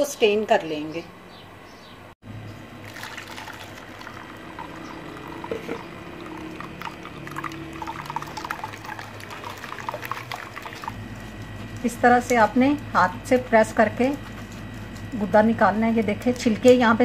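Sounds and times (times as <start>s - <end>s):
liquid splashing into bowl: 2.8s - 11.0s
liquid pouring through strainer: 2.8s - 11.3s.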